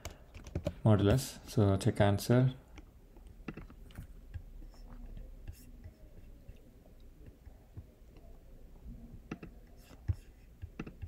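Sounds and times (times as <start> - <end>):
keyboard and mouse clicks: 0.0 - 0.8, 2.8 - 8.4, 9.2 - 11.0.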